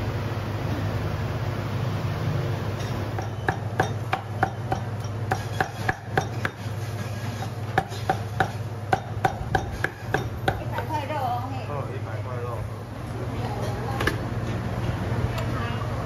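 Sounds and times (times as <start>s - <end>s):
cleaver chopping on wooden block: 3.2s - 6.6s, 7.8s - 10.8s.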